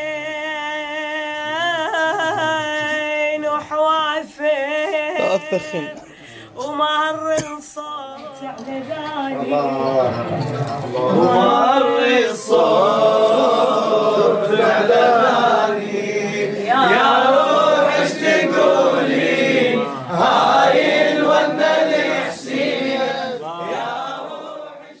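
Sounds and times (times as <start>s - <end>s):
boy and man chanting: 11.0s - 25.0s.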